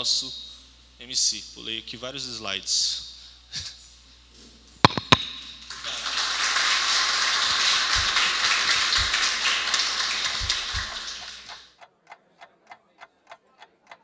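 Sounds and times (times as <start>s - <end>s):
sharp hand claps: 4.9s - 11.8s
audience applauding: 5.7s - 11.7s.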